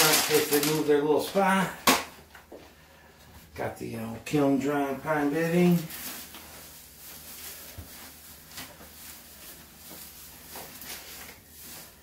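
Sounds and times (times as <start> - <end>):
wood shavings rustling: 0.0 - 1.4, 5.2 - 12.0.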